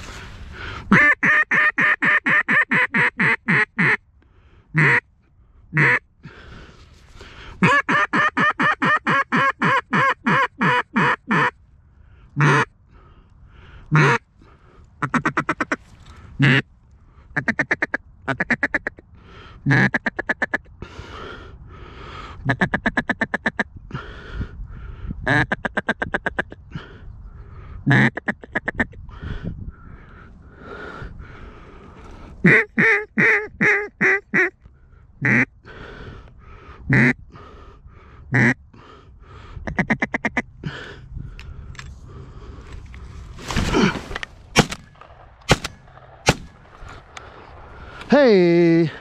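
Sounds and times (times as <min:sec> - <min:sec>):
duck call quacks: 0:00.9 - 0:04.0, 0:04.8 - 0:05.0, 0:05.7 - 0:06.0, 0:07.6 - 0:11.6, 0:12.4 - 0:12.7, 0:13.9 - 0:14.3, 0:15.0 - 0:15.8, 0:16.4 - 0:16.7, 0:17.4 - 0:19.0, 0:19.7 - 0:20.7, 0:22.4 - 0:23.7, 0:25.3 - 0:26.6, 0:27.9 - 0:29.0, 0:32.4 - 0:34.6, 0:35.2 - 0:35.5, 0:36.9 - 0:37.2, 0:38.3 - 0:38.6, 0:39.7 - 0:40.5.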